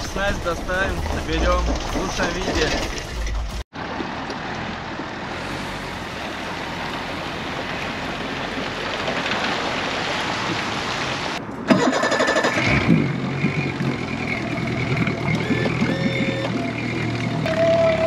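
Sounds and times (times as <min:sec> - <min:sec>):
wind and water rushing: 0:00.0 - 0:16.1
outboard motor starting and idling: 0:11.6 - 0:18.0.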